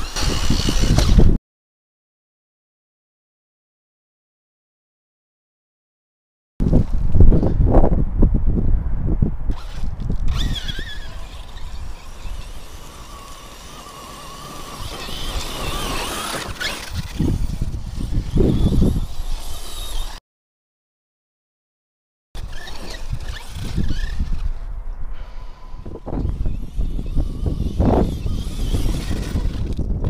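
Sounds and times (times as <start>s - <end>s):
electric motors whining: 0.0s - 1.3s, 9.5s - 20.2s, 22.4s - 30.0s
wind rumble on microphone: 0.0s - 1.4s, 6.6s - 20.2s, 22.4s - 30.0s.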